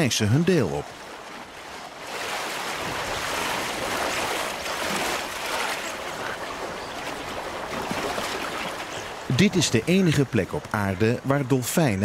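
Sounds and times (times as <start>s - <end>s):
water splashing and surging: 0.0s - 12.0s.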